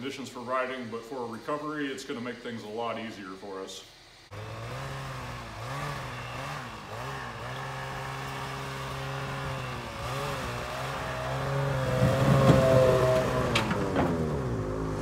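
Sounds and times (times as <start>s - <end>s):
snowmobile engine revving: 4.3s - 15.0s.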